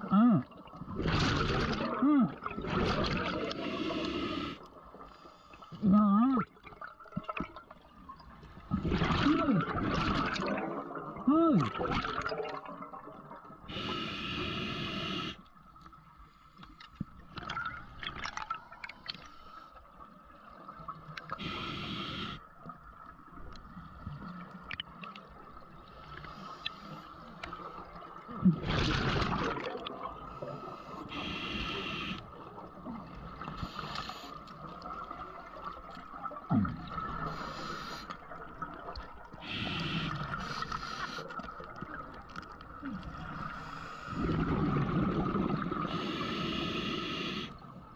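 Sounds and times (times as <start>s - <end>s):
exhaled bubbles gurgling: 0.0s - 5.1s, 6.4s - 15.4s, 23.6s - 47.9s
scuba regulator breathing hiss: 3.5s - 5.7s, 13.7s - 15.4s, 21.4s - 22.4s, 30.4s - 32.3s, 33.5s - 34.5s, 37.2s - 38.1s, 39.4s - 41.4s, 43.4s - 44.3s, 45.9s - 47.6s.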